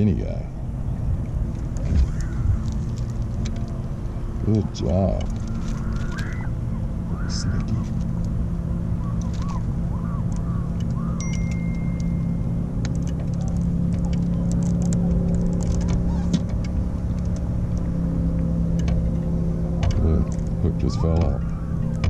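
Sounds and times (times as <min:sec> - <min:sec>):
boat motor humming: 0:00.0 - 0:22.0
light clicks and taps: 0:12.8 - 0:19.1.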